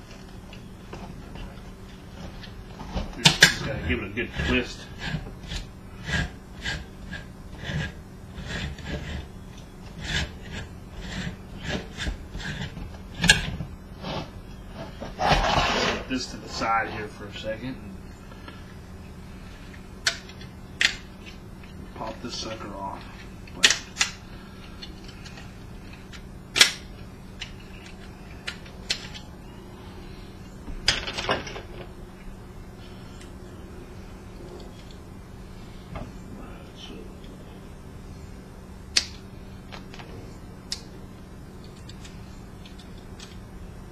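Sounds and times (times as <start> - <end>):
plastic parts scraping: 0.0 - 16.1.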